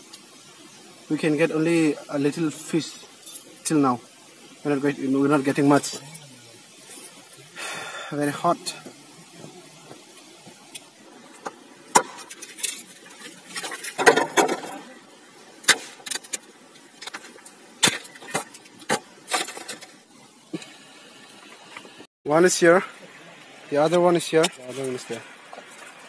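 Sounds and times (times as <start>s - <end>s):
bamboo poles knocking: 11.4s - 12.4s, 13.6s - 14.8s.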